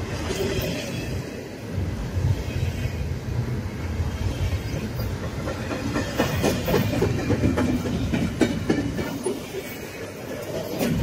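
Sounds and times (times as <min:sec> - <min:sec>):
freight train rumbling past: 0:00.0 - 0:11.0
wheels clacking over rail joints: 0:03.4 - 0:11.0.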